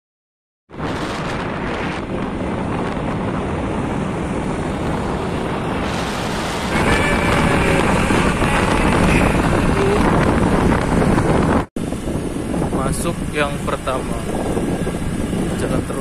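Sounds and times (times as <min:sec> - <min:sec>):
wind rushing over microphone: 0:00.7 - 0:16.0.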